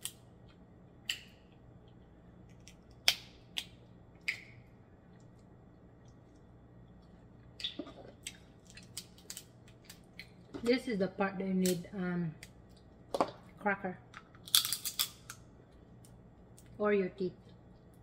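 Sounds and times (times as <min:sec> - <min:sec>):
crab shells cracking: 0:07.7 - 0:10.4, 0:14.3 - 0:15.4.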